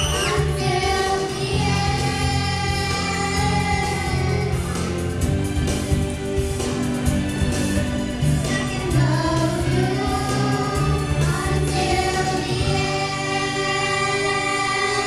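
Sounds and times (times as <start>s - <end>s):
girls singing together: 0.0s - 4.6s, 8.7s - 15.0s
instrumental accompaniment: 0.0s - 15.0s.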